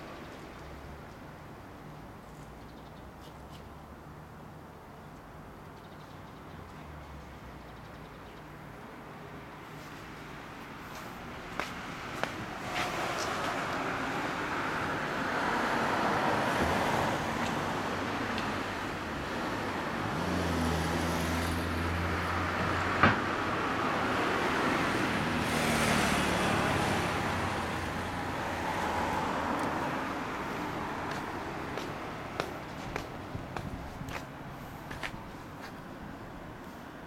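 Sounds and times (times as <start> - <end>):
cars passing: 8.6 - 37.0.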